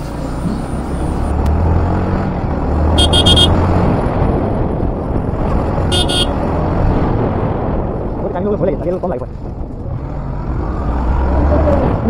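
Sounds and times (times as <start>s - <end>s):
road and wind noise: 0.0s - 12.0s
horn beeping: 3.0s - 3.6s, 5.9s - 6.4s.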